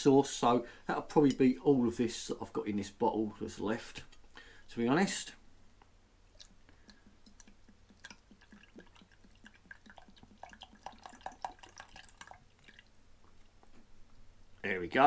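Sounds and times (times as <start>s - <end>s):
sauce dripping and splashing: 6.3s - 13.6s.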